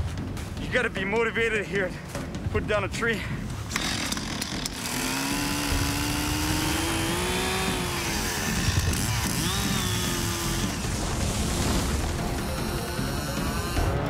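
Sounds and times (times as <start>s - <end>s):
chainsaw cutting wood: 3.7s - 14.0s.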